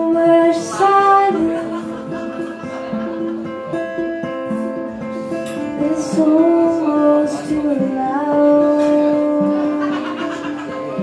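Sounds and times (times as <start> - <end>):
woman singing: 0.0 - 2.2, 5.6 - 10.4
strummed acoustic guitar: 0.0 - 11.0.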